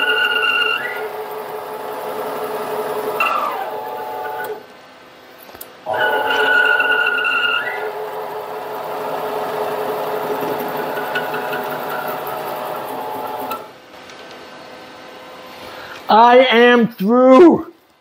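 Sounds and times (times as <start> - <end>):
high drill squeal: 0.0 - 1.2, 5.9 - 8.0
lathe drone: 0.0 - 4.6, 5.9 - 13.8.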